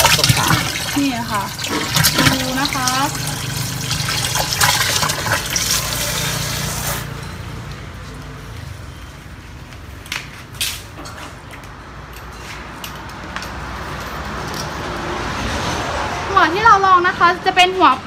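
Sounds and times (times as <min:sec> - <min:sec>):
water rushing into plastic tank: 0:00.0 - 0:07.0.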